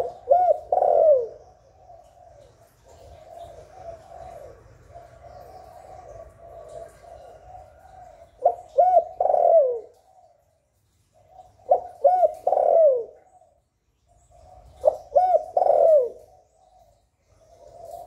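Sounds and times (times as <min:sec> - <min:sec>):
dove cooing: 0:00.0 - 0:18.0.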